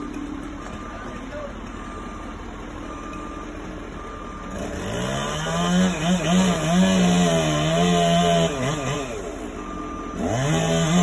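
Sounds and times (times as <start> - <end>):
chainsaw revving: 4.5 - 9.5, 10.1 - 11.0.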